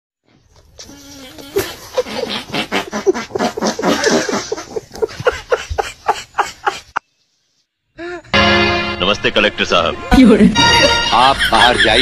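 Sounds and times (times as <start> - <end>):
hearty laughter in bursts: 1.4 - 7.0, 10.8 - 12.0.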